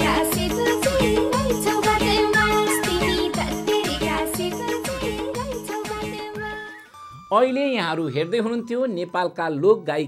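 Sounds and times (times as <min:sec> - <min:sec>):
woman singing: 0:00.0 - 0:06.9.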